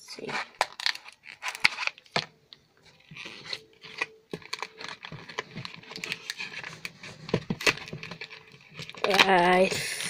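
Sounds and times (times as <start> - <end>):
foil wrapper crinkling: 0.2 - 2.2, 3.0 - 10.0.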